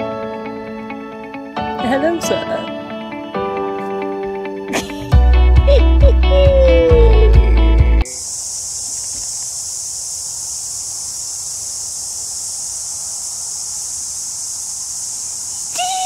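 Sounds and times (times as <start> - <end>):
cicadas droning: 8.0 - 16.0.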